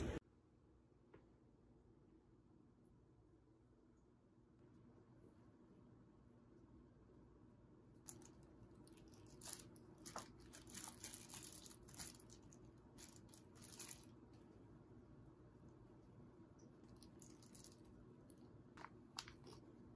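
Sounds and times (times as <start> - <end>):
low room hum: 0.0 - 19.9
plastic bag crinkling: 8.0 - 14.4, 16.8 - 19.8.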